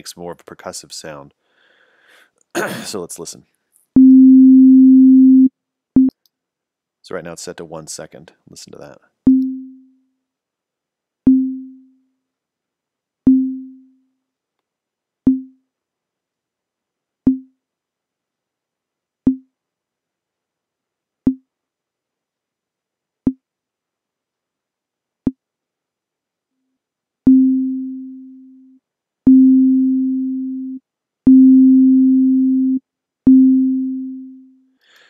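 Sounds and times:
synth sine note: 4.0 - 6.1.

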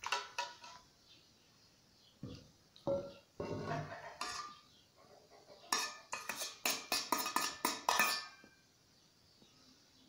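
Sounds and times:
metal spoon scraping bowl: 0.0 - 0.8, 3.4 - 4.7, 5.6 - 8.5
spoon clinking on metal bowl: 5.7 - 8.5.

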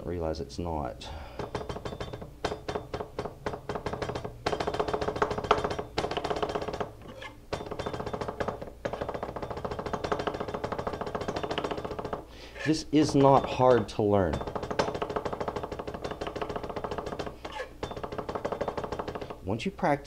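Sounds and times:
knife chopping on plastic board: 13.0 - 19.4.

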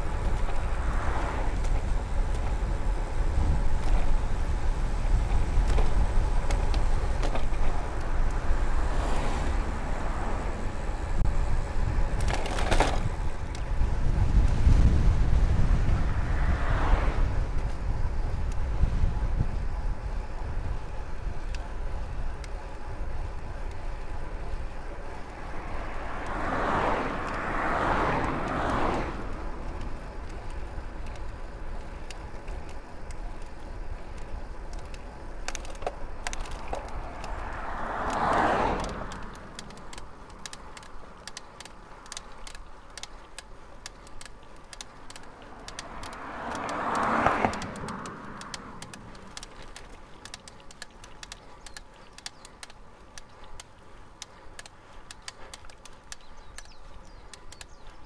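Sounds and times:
wind rumble on microphone: 0.0 - 32.9
cars passing on road: 0.0 - 58.0.

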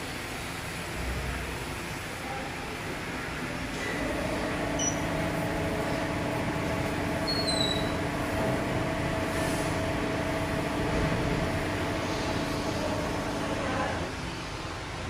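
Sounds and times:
spray gun rushing: 3.7 - 14.1.

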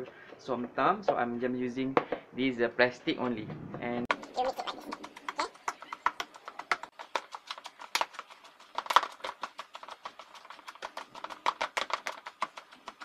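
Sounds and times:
pestle knocking plastic bowl: 4.1 - 13.0.

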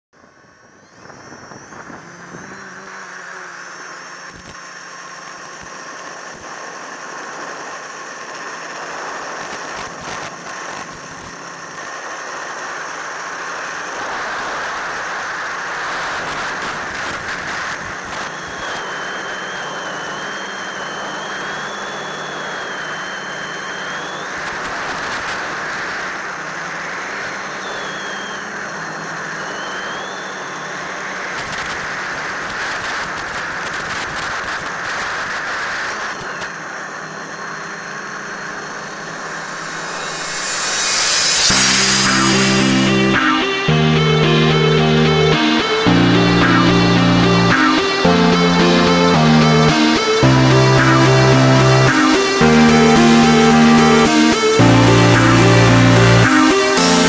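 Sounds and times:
model electric motor whirring: 0.3 - 35.3, 35.9 - 42.9
high whines: 38.2 - 57.0.

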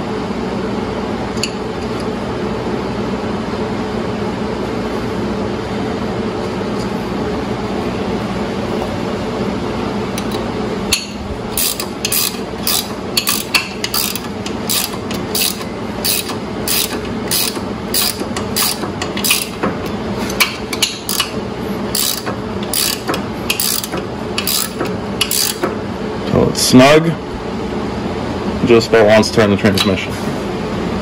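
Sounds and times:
ratcheting wrench clicking: 11.6 - 19.6, 20.8 - 21.3, 21.9 - 25.7.

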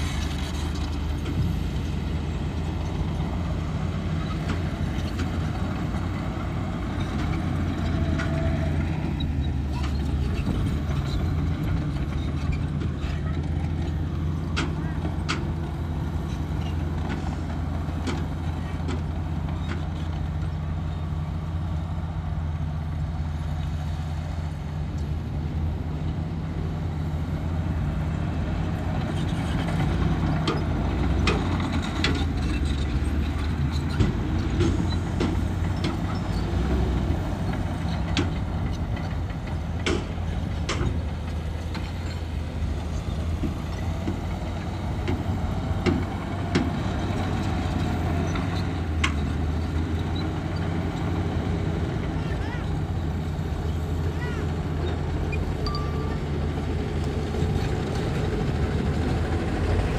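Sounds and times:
diesel engine running: 0.0 - 59.9
metallic clanks and knocks: 29.6 - 36.4, 37.5 - 42.4.

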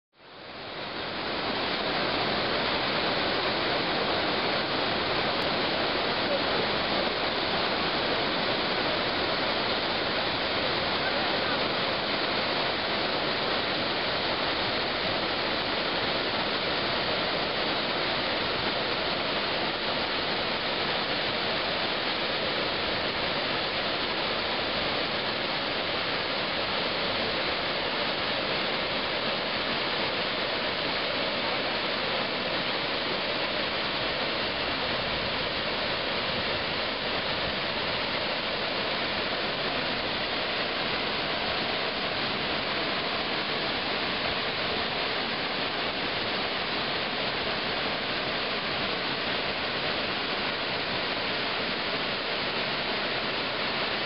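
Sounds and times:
waterfall rushing: 0.2 - 54.0.

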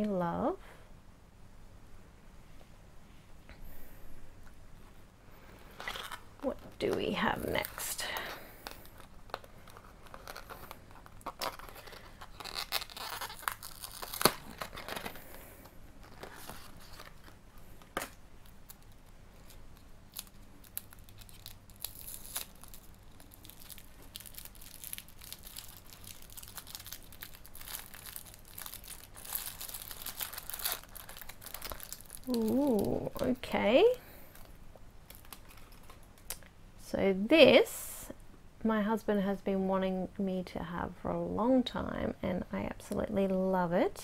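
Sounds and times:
tissue paper crinkling and tearing: 7.4 - 34.5.

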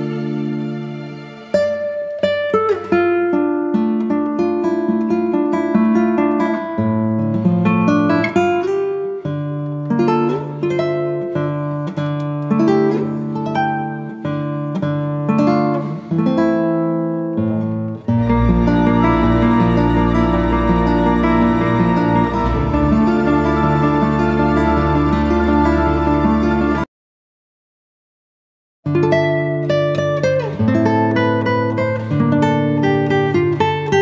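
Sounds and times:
plucked guitar melody: 0.0 - 26.9, 28.9 - 34.0
held bass notes: 18.2 - 26.8.

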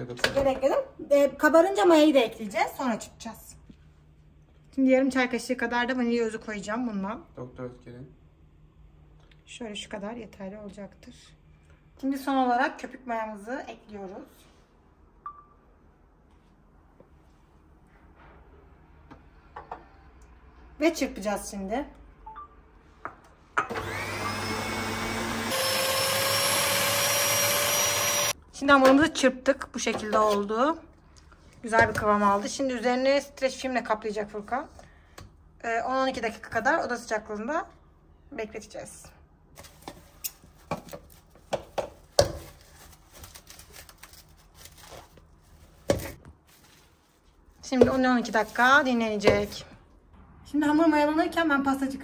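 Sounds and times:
electric mixer whirring: 23.7 - 28.4
plastic film rustling: 42.4 - 45.8
cling film crinkling and tearing: 42.6 - 45.4.

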